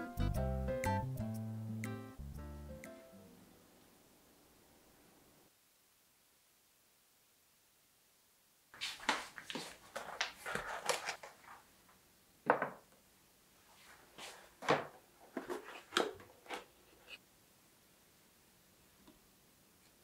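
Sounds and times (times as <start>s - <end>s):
rustling: 8.7s - 12.0s
containers knocking on countertop: 12.5s - 12.8s.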